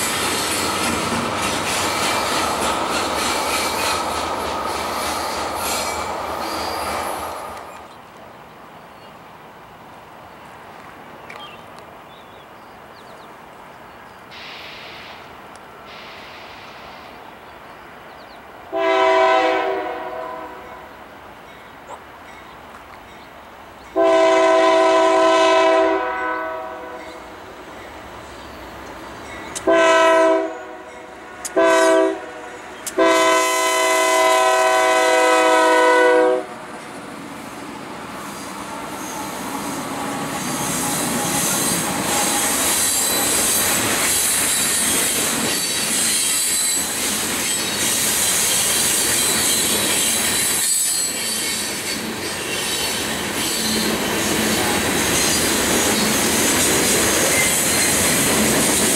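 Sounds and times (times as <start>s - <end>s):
train wheels clattering on rails: 0.0s - 7.9s, 38.4s - 58.9s
train horn blasts: 18.7s - 21.0s, 24.0s - 27.2s, 29.6s - 36.6s
high-pitched wheel squeal: 44.5s - 53.9s.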